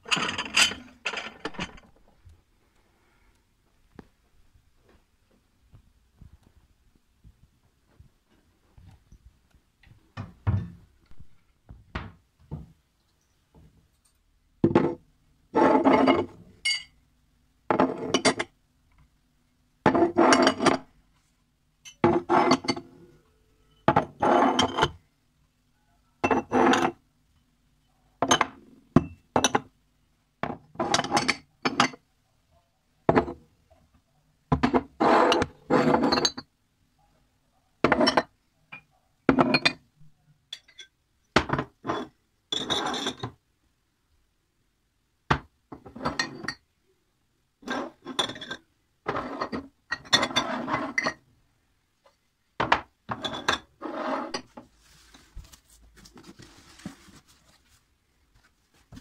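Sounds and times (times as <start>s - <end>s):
glasses clinking on shelf: 0.1s - 1.8s, 16.6s - 17.0s
faint rustling: 54.6s - 59.0s.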